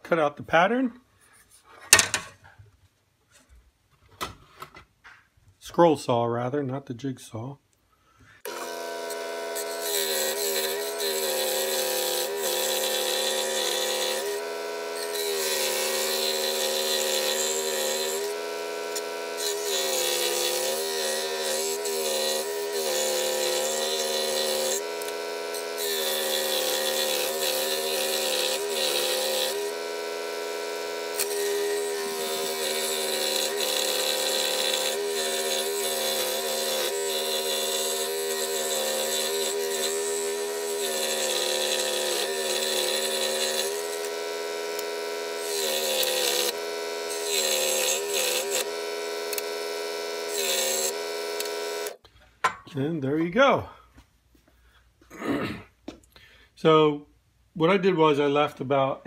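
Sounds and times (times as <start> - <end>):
saw blade rasping through wood: 8.5 - 52.0
scroll saw motor hum: 8.5 - 52.0.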